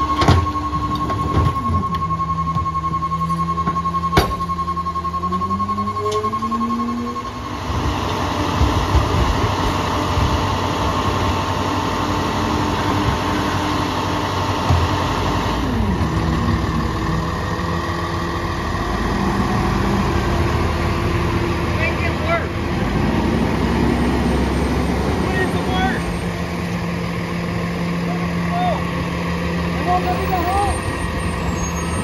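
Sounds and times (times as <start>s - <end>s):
warning beeps: 0.0s - 7.5s
diesel engine revving: 0.0s - 32.0s
hydraulic packer noise: 0.0s - 32.0s.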